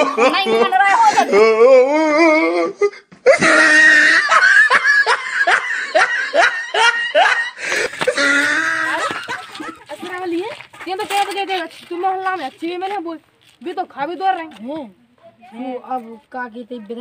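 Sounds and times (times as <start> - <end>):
people laughing: 0.0 - 2.6, 3.3 - 10.3.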